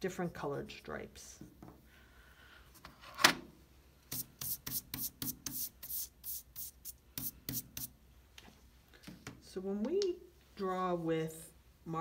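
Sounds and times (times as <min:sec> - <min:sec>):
brush sweeping paper: 0:04.1 - 0:07.9.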